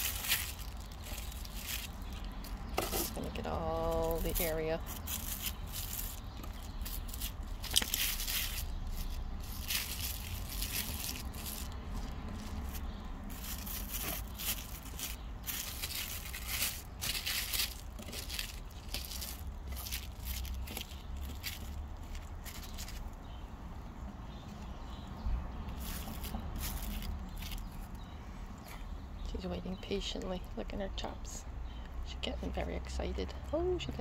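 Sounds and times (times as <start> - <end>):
plastic bag crinkling: 0.0 - 23.1.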